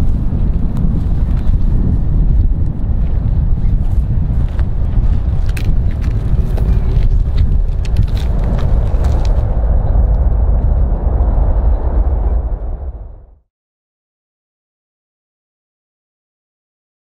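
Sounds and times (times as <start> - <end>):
jet engines deep rumble: 0.0 - 13.5.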